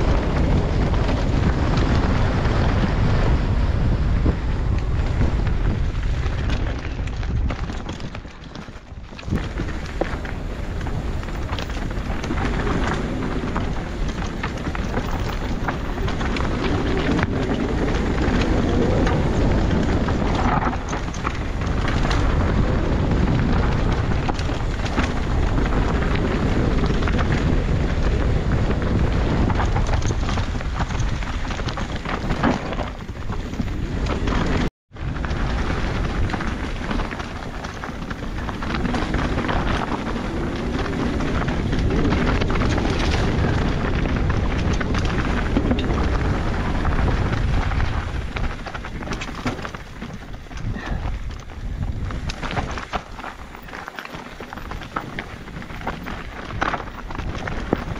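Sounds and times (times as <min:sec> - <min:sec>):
bike rattling over ground: 0:00.0 - 0:57.9
tyres rumbling on dirt: 0:00.0 - 0:57.9
wind buffeting microphone: 0:00.0 - 0:57.9.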